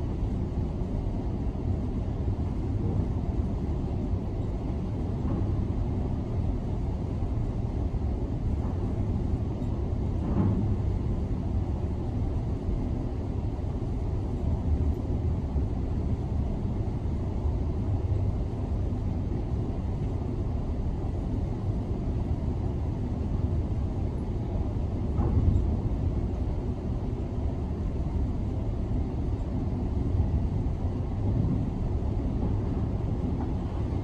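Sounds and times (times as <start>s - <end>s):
muffled demolition machinery rumble: 2.6s - 13.3s, 23.3s - 26.6s.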